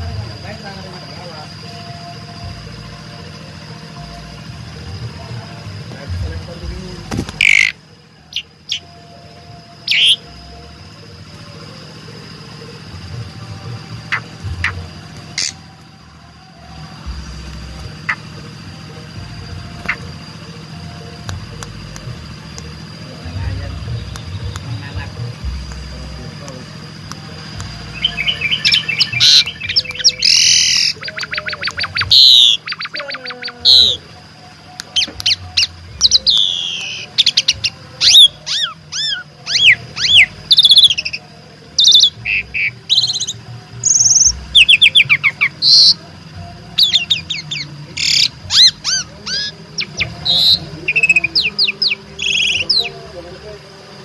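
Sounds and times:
starling singing: 0.0s - 54.0s.

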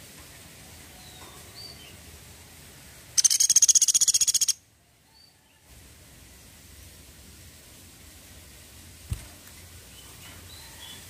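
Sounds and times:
woodpecker rattling trill: 3.2s - 4.6s.

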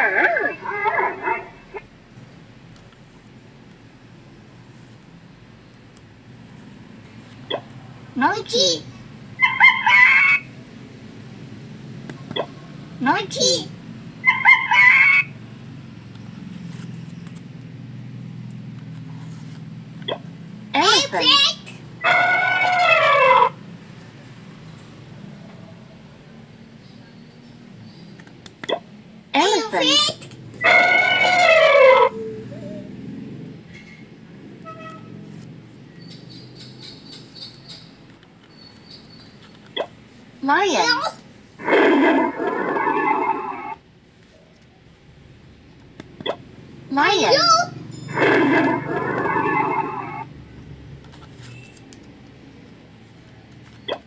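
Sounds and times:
recorded monkey call from toy speaker: 0.0s - 1.8s, 9.4s - 10.6s, 12.3s - 15.4s, 20.8s - 23.6s, 29.4s - 32.9s, 46.3s - 50.3s
handling noise of cards: 16.1s - 17.8s, 18.4s - 20.0s, 50.9s - 53.9s.

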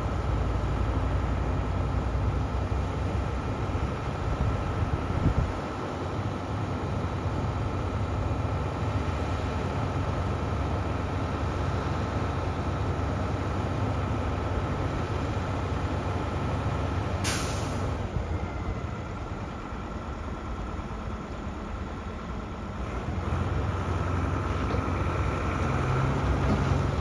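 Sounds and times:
heavy vehicle engine rumble: 0.0s - 27.0s
compressed air hiss: 17.2s - 17.9s.

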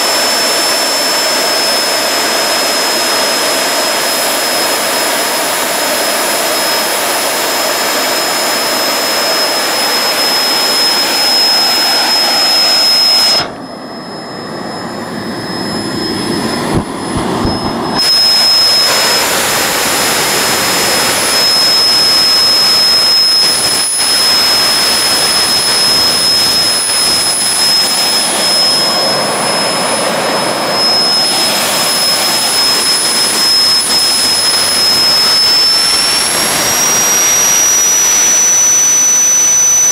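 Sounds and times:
high turbine whine: 0.0s - 39.9s
jet engine roaring: 0.0s - 39.9s.

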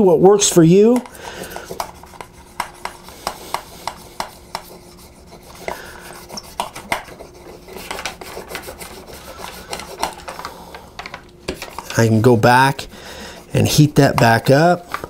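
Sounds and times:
scratchy rubbing on paper: 1.3s - 10.3s, 13.2s - 14.7s.

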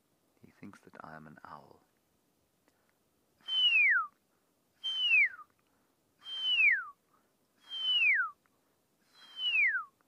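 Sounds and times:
person whistling owl call: 3.4s - 4.2s, 4.8s - 5.5s, 6.2s - 7.0s, 7.6s - 8.4s, 9.0s - 10.0s.

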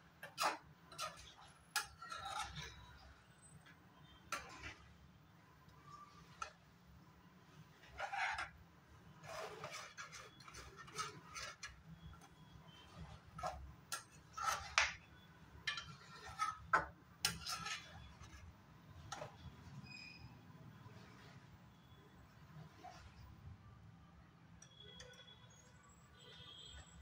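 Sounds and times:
spoon scraping steel pan: 0.2s - 6.8s, 7.5s - 21.5s.

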